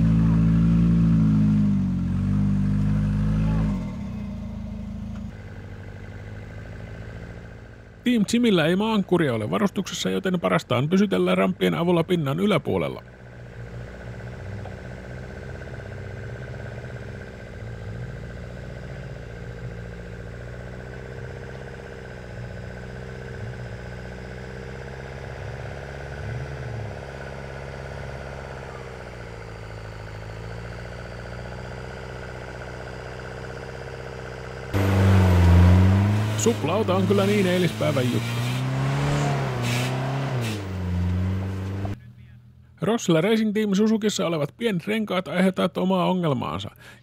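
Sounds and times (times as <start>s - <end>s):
car engine idling: 0.0s - 43.0s
engine revving loudly: 13.4s - 32.7s, 34.7s - 42.0s.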